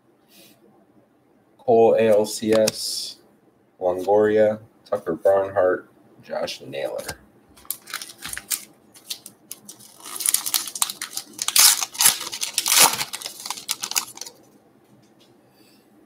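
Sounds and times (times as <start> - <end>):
card pack rustling and clicking: 7.0 - 14.4
wrapper crinkling and tearing: 7.6 - 14.4.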